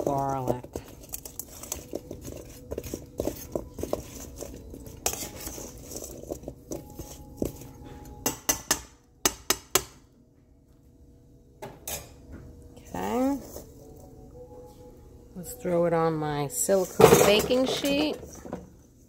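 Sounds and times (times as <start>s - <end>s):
metal utensil clinking on bowl: 0.0s - 8.8s.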